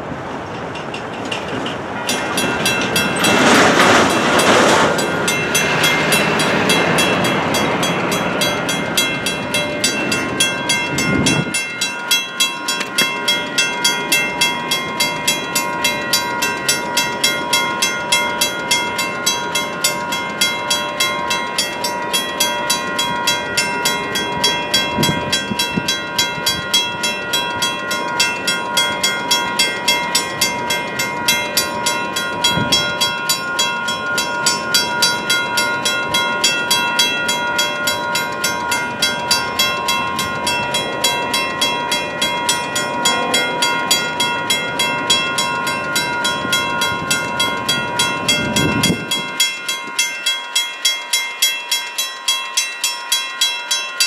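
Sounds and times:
railroad crossing bells clanging: 0.0s - 54.0s
road vehicle passing: 42.2s - 45.5s.

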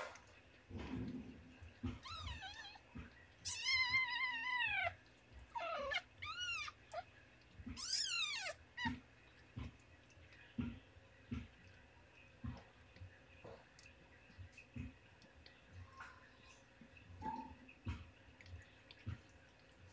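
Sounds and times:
newborn kittens squealing: 1.9s - 9.0s.

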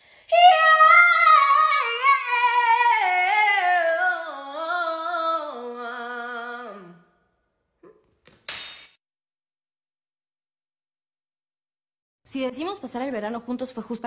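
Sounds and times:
woman singing wordless vocal run: 0.2s - 7.1s.

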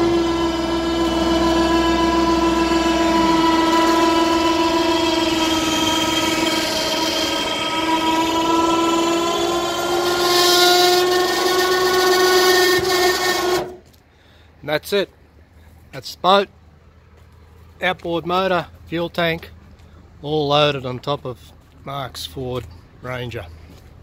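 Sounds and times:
electric motor whining under load: 0.0s - 13.8s.

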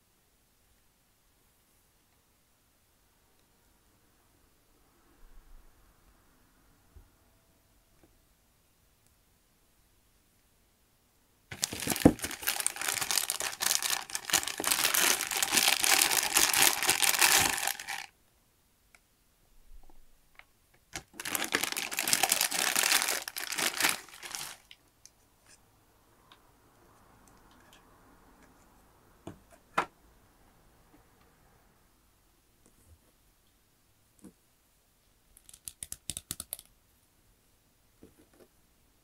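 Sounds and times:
plastic bag crinkling: 11.5s - 18.1s, 21.0s - 24.8s.

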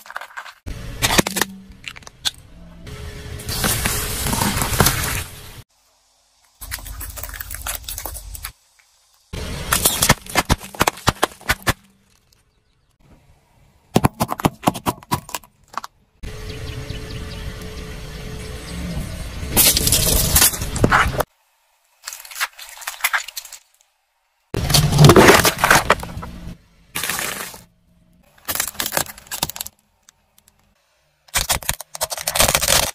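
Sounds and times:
car tyre crushing brittle objects: 0.0s - 2.4s, 3.5s - 5.3s, 6.5s - 13.0s, 13.9s - 16.0s, 19.5s - 21.3s, 21.9s - 24.0s, 24.6s - 30.7s, 31.3s - 32.9s
objects crunching under car tyre: 3.5s - 5.4s, 9.7s - 12.6s, 19.6s - 21.3s, 24.6s - 29.8s.

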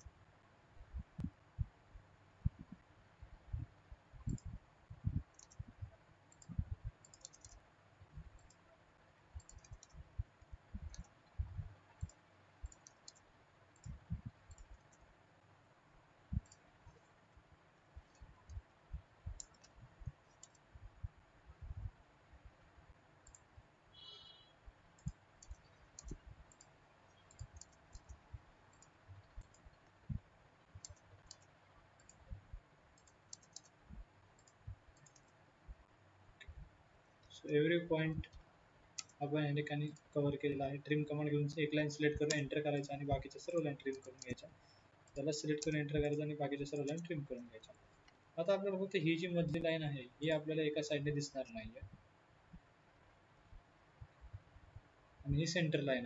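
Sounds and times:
soft low thumps: 2.4s - 7.0s, 10.0s - 11.8s, 20.8s - 22.0s
mouse and keyboard clicks: 4.2s - 5.7s, 6.3s - 7.6s, 9.4s - 10.0s, 10.7s - 11.4s, 12.0s - 15.1s, 19.4s - 20.7s, 25.0s - 30.0s, 30.7s - 32.3s, 33.0s - 35.4s, 39.0s - 39.2s.

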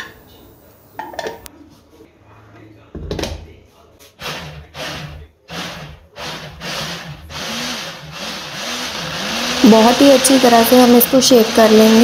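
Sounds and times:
electric mini chopper blending: 4.2s - 12.0s.

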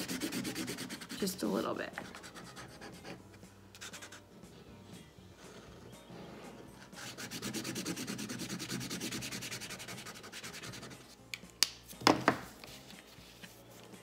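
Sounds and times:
marker scribbling on paper: 0.0s - 1.4s, 2.0s - 3.2s, 3.8s - 4.3s, 6.8s - 11.0s
marker put down on table: 12.0s - 12.5s.

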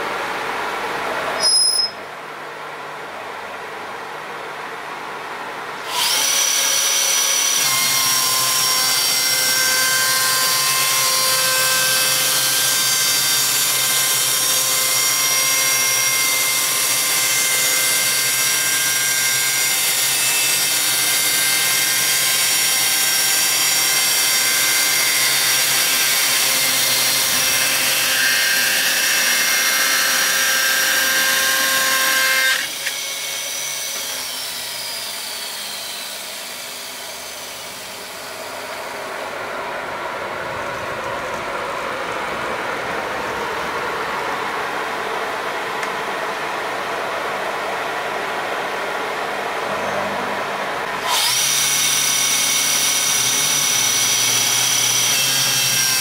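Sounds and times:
chainsaw mill cutting log: 16.0s - 39.0s, 51.0s - 56.0s.

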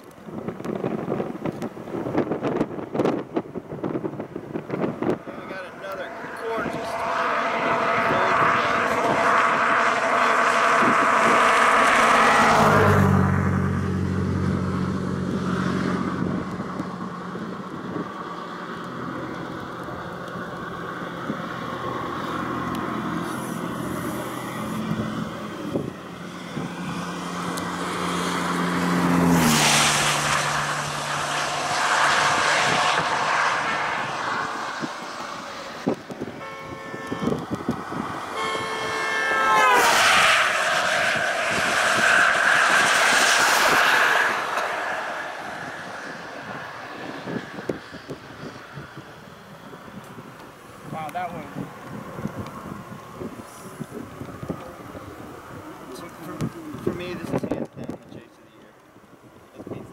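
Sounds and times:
vehicle engine humming: 0.0s - 59.9s
wind and road noise: 0.0s - 59.9s.

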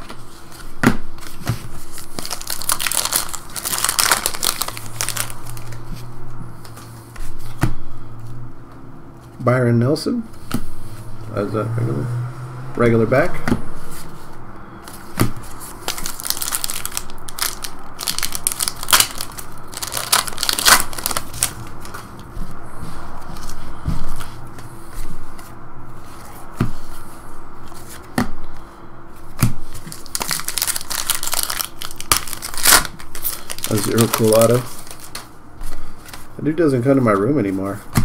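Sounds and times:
wrappers crinkling and tearing: 0.0s - 6.8s, 14.9s - 22.1s, 29.7s - 37.5s.

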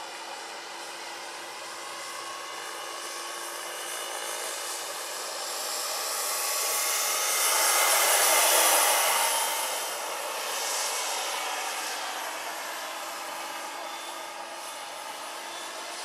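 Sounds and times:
model helicopter turbine whine: 0.0s - 16.0s.

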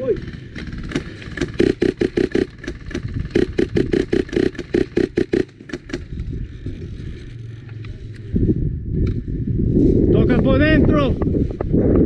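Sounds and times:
airsoft rifle shots: 0.2s - 6.1s.

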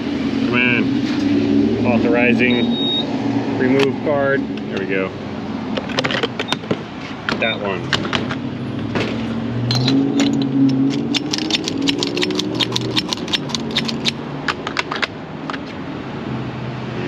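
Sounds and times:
fuel nozzle clicking and rattling: 10.2s - 15.6s.

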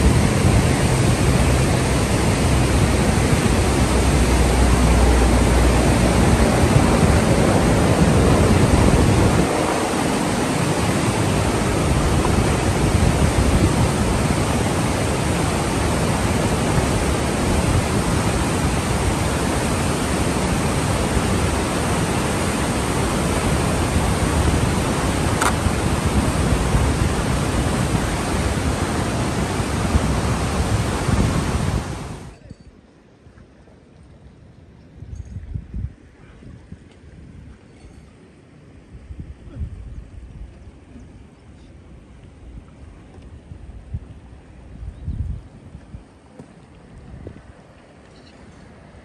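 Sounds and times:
river rushing: 0.0s - 32.4s.

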